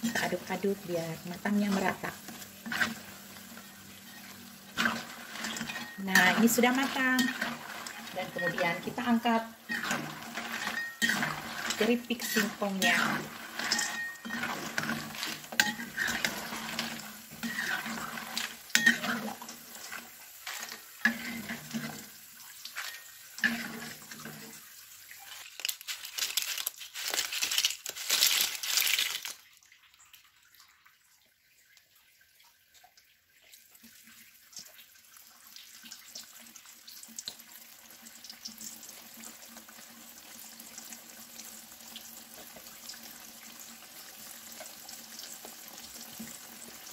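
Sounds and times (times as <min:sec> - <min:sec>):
metal utensils clinking on pan: 0:00.0 - 0:00.7, 0:04.1 - 0:22.1, 0:22.7 - 0:24.5
chips sizzling in hot oil: 0:00.0 - 0:30.0, 0:34.6 - 0:46.9
crisp chips rattling into basket: 0:25.2 - 0:29.5.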